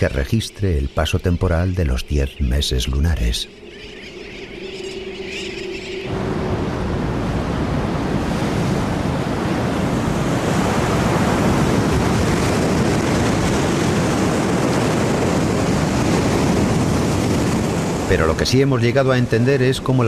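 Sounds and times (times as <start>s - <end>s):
stormy sea waves breaking: 5.2s - 20.0s.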